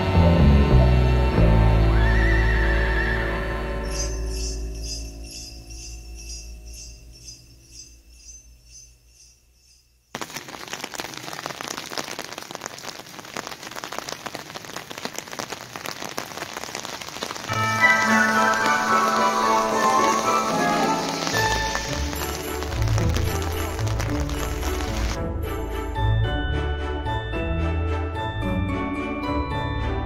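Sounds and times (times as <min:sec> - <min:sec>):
festive holiday song with sleigh bells: 0:03.8 - 0:10.2, 0:17.5 - 0:30.0
rain on umbrella: 0:10.1 - 0:25.2.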